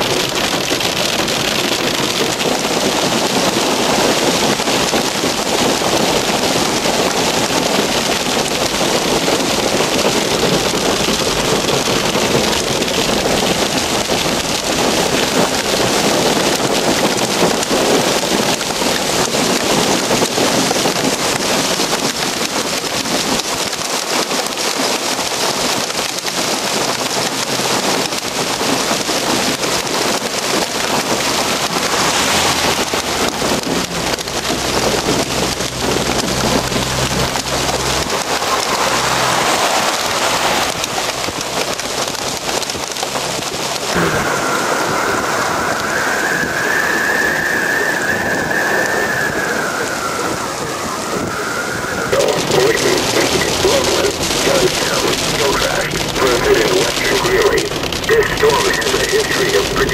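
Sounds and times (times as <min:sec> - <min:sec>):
hail and heavy rain pelting: 0:00.0 - 0:59.9
low rumble: 0:30.5 - 0:59.9
high wavering whistling tone: 0:44.1 - 0:52.1.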